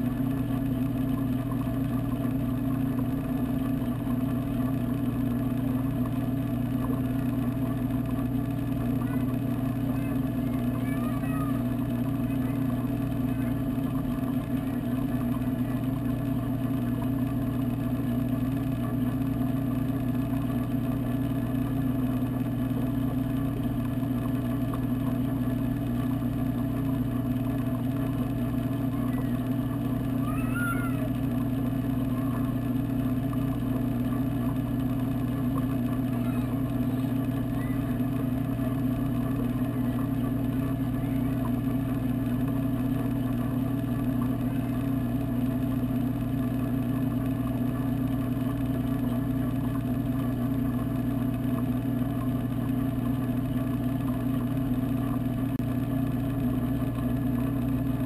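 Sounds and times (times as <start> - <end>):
moving water: 0.0 - 58.0
water pump electrical hum: 0.0 - 58.0.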